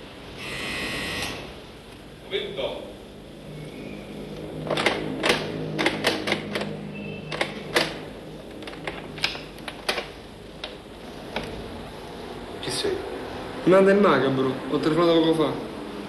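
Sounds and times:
sharp clicks and knocks behind door: 4.6s - 11.6s.

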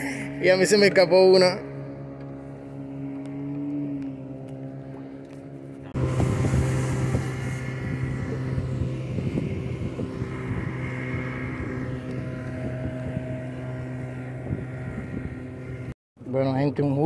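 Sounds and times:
outboard motor running: 0.0s - 16.0s
water noise: 0.0s - 17.0s
wind noise: 6.0s - 15.9s.

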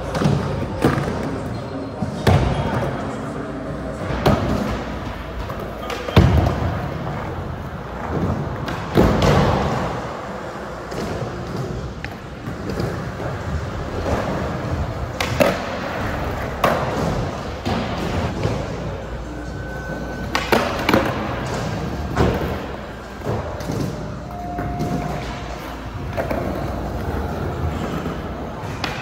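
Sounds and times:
skateboard wheels rolling: 4.3s - 29.0s.

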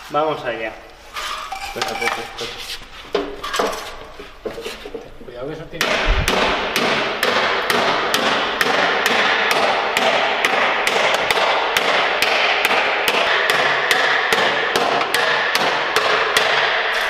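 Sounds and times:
hammer striking sheet metal: 5.8s - 17.0s.

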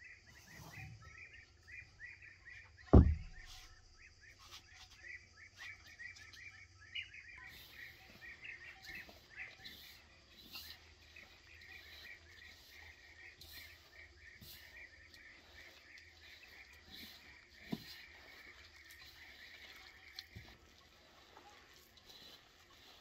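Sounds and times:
small birds chirping: 0.0s - 23.0s
sharp thump: 2.9s - 3.7s.

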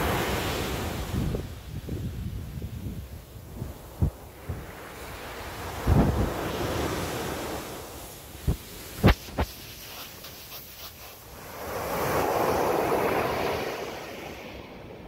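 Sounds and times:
ocean waves breaking: 3.8s - 15.0s
foam hissing on sand: 8.0s - 14.3s.

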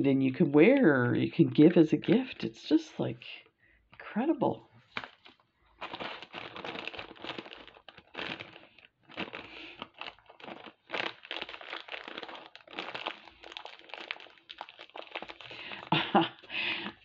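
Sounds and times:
plastic bag crinkling: 4.8s - 17.0s.

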